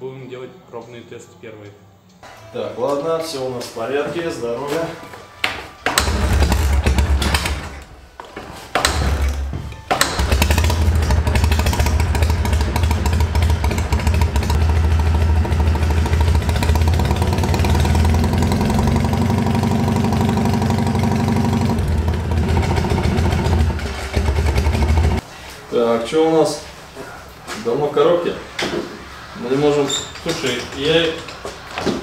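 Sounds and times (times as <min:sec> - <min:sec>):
motorcycle engine running: 0:06.1 - 0:07.5, 0:10.0 - 0:25.2.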